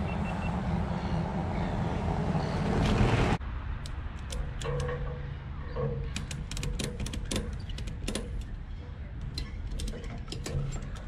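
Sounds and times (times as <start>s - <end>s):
low wind rumble: 0.0s - 11.0s
gear clicking and rattling: 3.8s - 11.0s.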